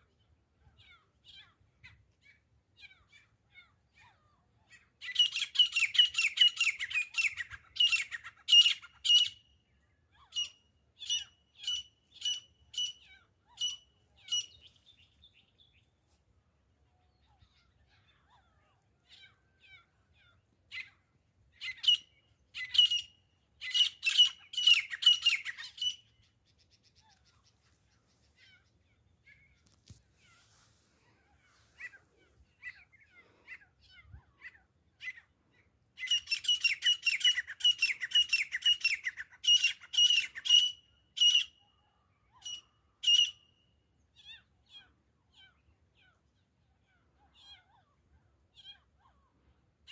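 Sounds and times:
francolin calling: 0:21.6 - 0:29.6.

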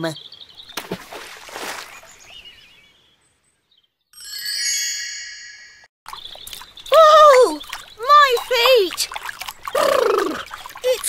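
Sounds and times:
water splashing: 0:00.7 - 0:02.4, 0:06.1 - 0:11.0
ringing chime: 0:04.2 - 0:05.9.

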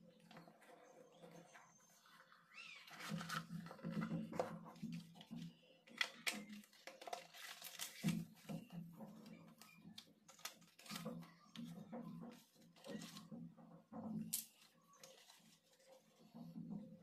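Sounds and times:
cardboard box and paper rustling: 0:00.4 - 0:13.5.

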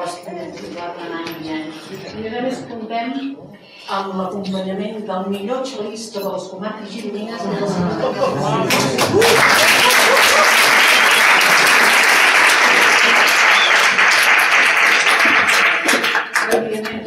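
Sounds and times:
audience applauding: 0:08.7 - 0:17.0.

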